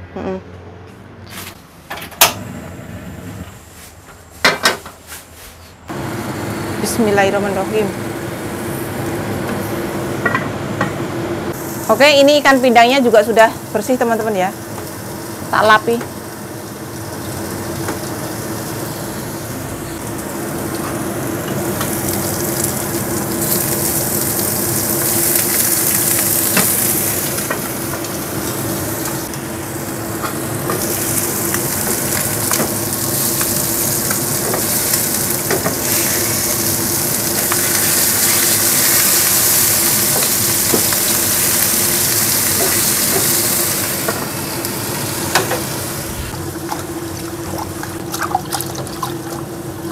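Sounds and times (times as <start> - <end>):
fish sizzling in hot oil: 11.6 - 20.0, 21.7 - 46.2.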